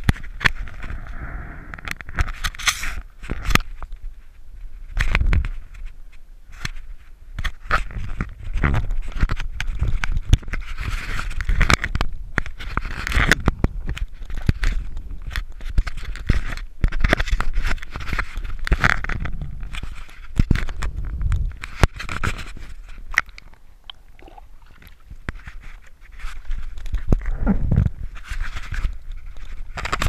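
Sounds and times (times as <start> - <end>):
scraping and clicking on camera housing: 0.0 - 3.9
low rumbling: 0.6 - 2.3, 19.1 - 20.0, 27.1 - 28.3.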